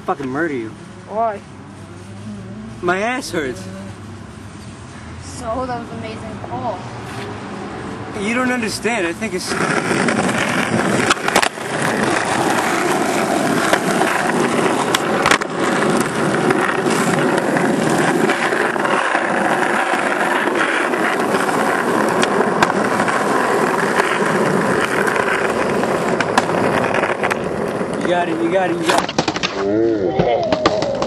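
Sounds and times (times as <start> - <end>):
skateboard wheels rolling on asphalt: 0.0 - 31.0
sharp skateboard clacks: 9.5 - 31.0.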